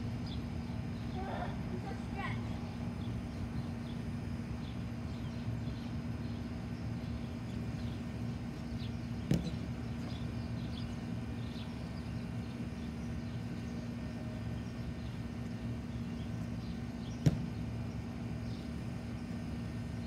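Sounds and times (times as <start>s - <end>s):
low outdoor hum: 0.0s - 20.0s
thump on gymnastics mat: 17.2s - 17.5s.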